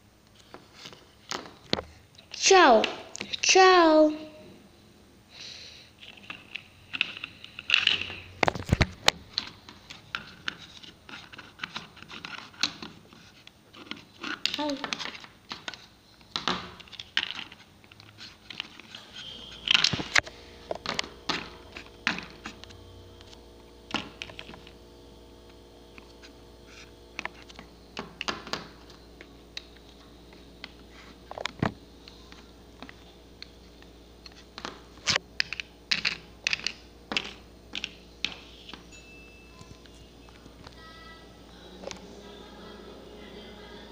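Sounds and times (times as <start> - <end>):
plastic toys clicking and tapping: 13.8 - 18.9, 35.4 - 38.8.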